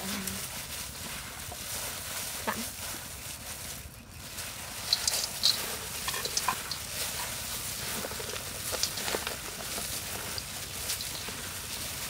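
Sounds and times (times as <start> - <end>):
salad rustling in metal bowl: 0.0 - 12.0.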